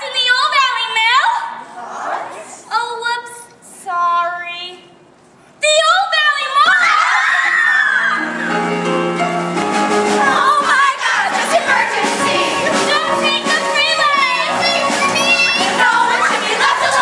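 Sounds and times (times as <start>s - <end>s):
stage musical music: 7.4s - 17.0s
chorus of young women singing: 10.2s - 17.0s.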